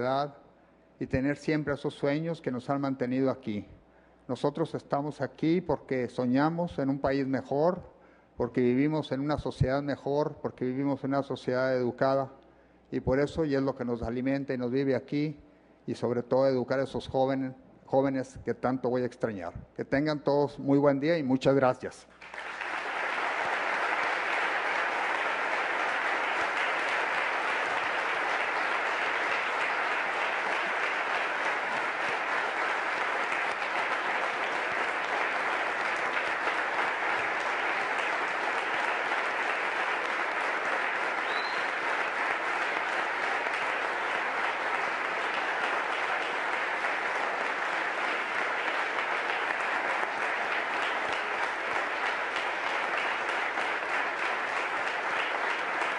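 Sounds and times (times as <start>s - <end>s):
large audience applauding: 22.1s - 55.9s.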